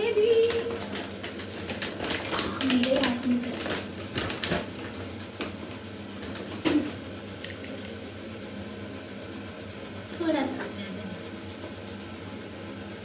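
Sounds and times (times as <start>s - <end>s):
plastic bag crinkling: 0.6s - 4.8s.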